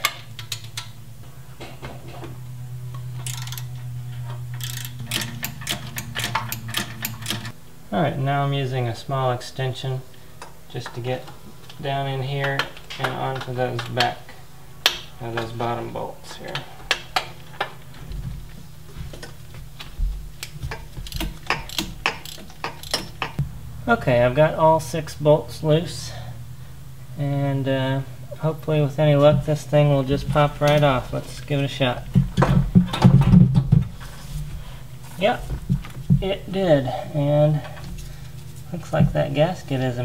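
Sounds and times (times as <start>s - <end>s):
steady low hum: 0.0s - 40.0s
socket ratchet clicking: 3.2s - 3.7s, 4.6s - 7.5s, 21.0s - 23.4s.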